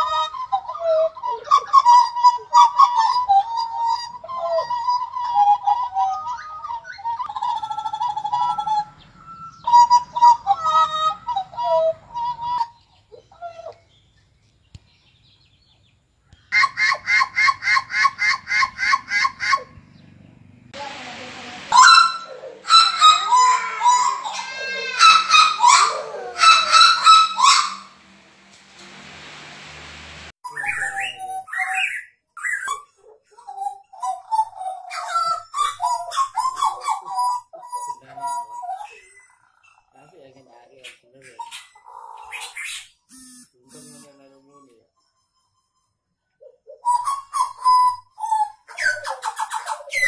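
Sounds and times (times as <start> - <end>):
bird singing whistled notes: 1.7 - 14.2, 21.7 - 28.1, 30.4 - 32.8, 46.8 - 49.1
fast repeated bird notes: 1.9 - 13.3, 21.0 - 32.7
steady hiss: 20.8 - 30.4.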